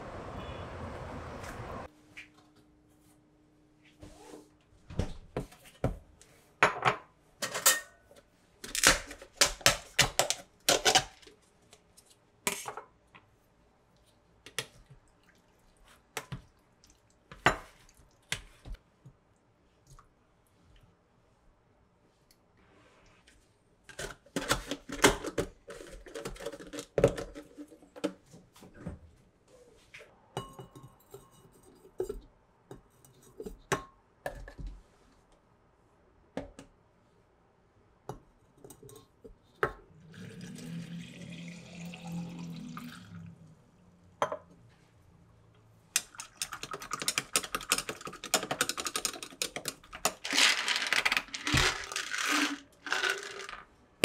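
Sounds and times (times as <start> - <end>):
liquid pouring into glass jug: 40.0 - 43.4
containers set down: 50.0 - 53.6.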